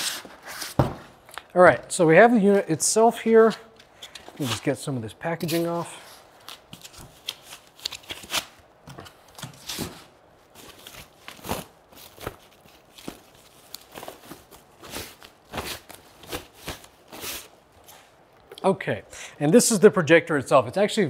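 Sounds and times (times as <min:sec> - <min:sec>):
foam packing blocks handled: 0:00.0 - 0:01.5, 0:03.4 - 0:18.1
plastic bag rustling and crinkling: 0:05.4 - 0:18.1.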